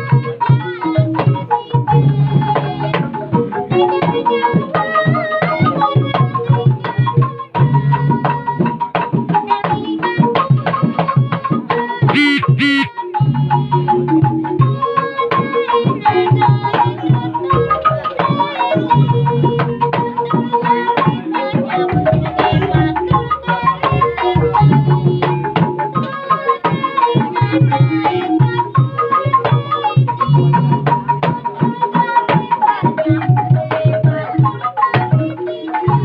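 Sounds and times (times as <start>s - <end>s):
hand drums: 0.0s - 36.0s
bamboo xylophones: 12.1s - 12.9s.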